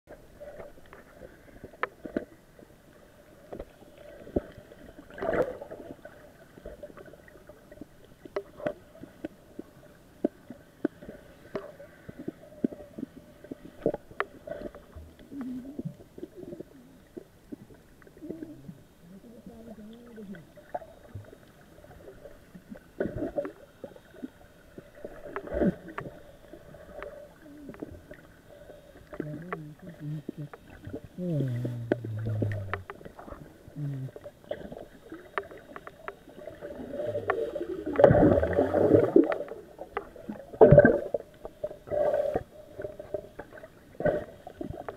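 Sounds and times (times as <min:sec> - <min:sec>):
muffled underwater water wash: 0:00.1 - 0:44.9
muffled wavering tones: 0:29.2 - 0:34.2.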